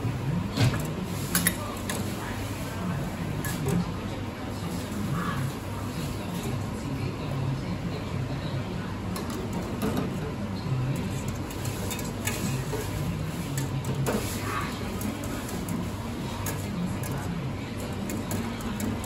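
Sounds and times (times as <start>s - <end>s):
murmur of voices: 0.0s - 19.0s
bowls and utensils clinking: 11.0s - 19.0s.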